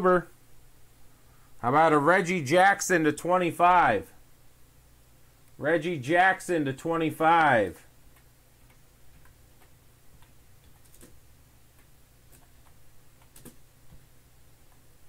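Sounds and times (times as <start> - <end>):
low steady hum: 0.0 - 15.0
computer keyboard typing: 8.1 - 14.0.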